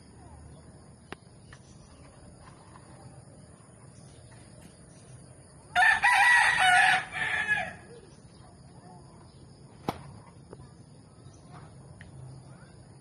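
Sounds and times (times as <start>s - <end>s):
rooster crowing: 5.7s - 8.0s.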